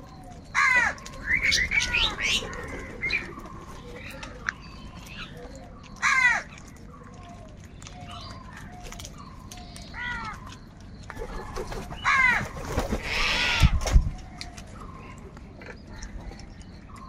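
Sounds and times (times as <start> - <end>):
crows cawing: 0.6 - 1.0, 6.0 - 6.5, 12.0 - 13.8.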